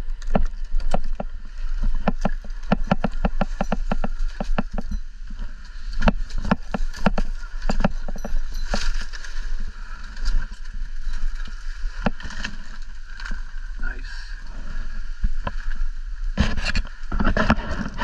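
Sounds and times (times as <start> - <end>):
pruning saw cutting fronds: 0.0 - 13.4
wind rumble on microphone: 0.0 - 18.0.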